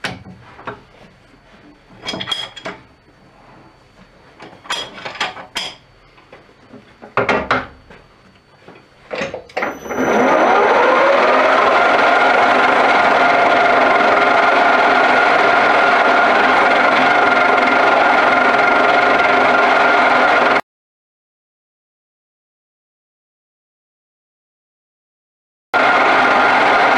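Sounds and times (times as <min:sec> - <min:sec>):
lathe motor and gears running: 0:08.3 - 0:20.6, 0:25.8 - 0:26.9.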